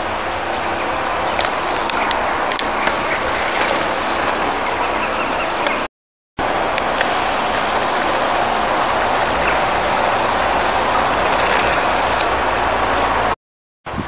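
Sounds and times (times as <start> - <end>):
traffic noise: 0.0 - 14.0
low engine hum: 6.4 - 13.4.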